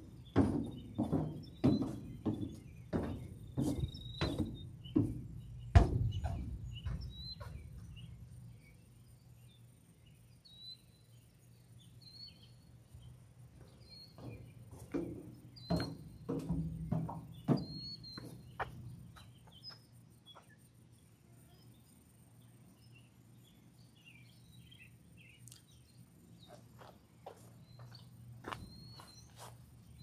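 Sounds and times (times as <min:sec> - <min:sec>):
footsteps: 0:00.0 - 0:08.2, 0:13.5 - 0:19.9, 0:26.5 - 0:29.8
faint high bird chirps: 0:00.1 - 0:13.1, 0:17.3 - 0:30.0.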